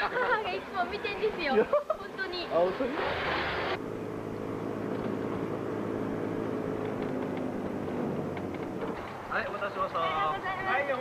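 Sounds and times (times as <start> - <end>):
steady engine hum: 0.0 - 11.0.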